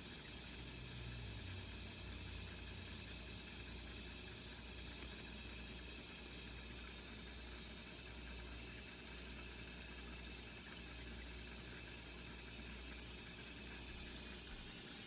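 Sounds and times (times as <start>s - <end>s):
fish tank bubbling: 0.2s - 15.0s.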